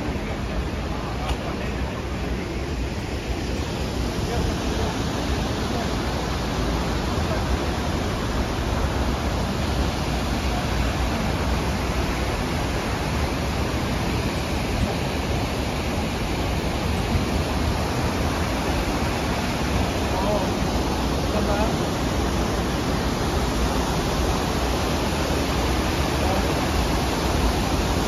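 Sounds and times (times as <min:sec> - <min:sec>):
waterfall rushing: 0:00.0 - 0:28.0.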